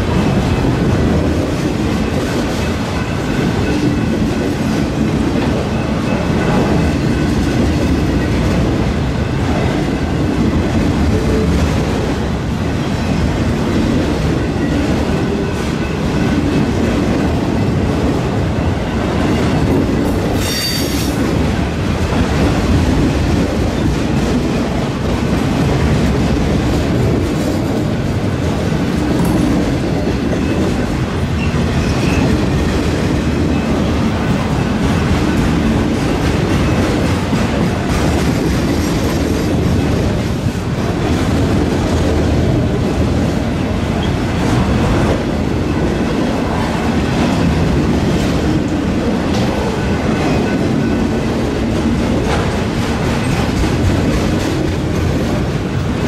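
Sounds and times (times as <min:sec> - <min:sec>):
freight train wheels clacking on rails: 0:00.0 - 0:56.0
high-pitched wheel squeal: 0:20.4 - 0:21.1.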